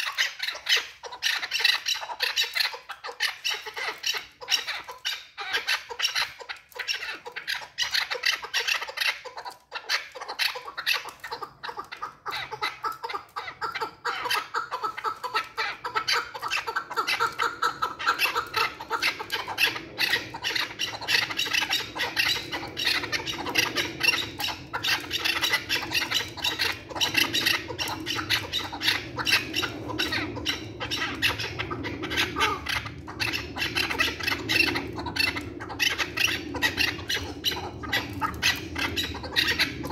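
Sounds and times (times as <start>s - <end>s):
partridge calling: 10.2s - 39.9s.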